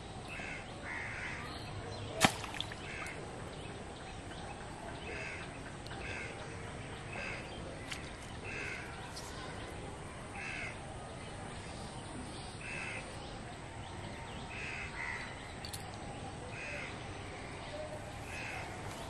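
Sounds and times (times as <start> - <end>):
crows cawing: 0.3 - 1.4, 10.4 - 10.8.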